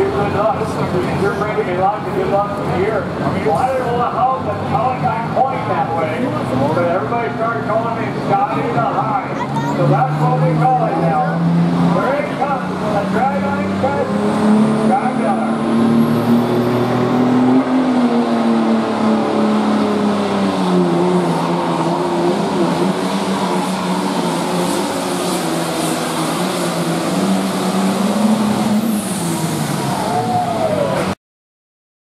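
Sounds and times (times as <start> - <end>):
tractor diesel engine under load: 0.0 - 31.2.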